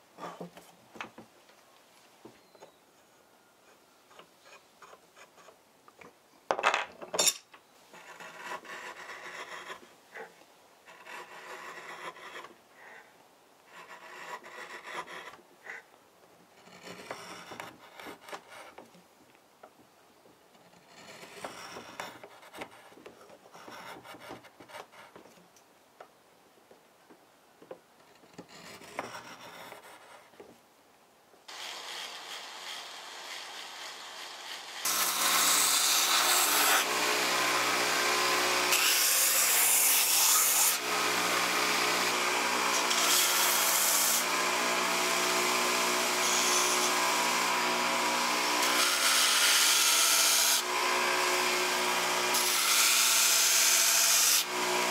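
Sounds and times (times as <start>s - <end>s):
knife scraping wood: 3.7s - 5.6s, 7.9s - 13.0s, 13.7s - 15.9s, 16.6s - 19.0s, 20.5s - 25.4s, 28.0s - 30.4s.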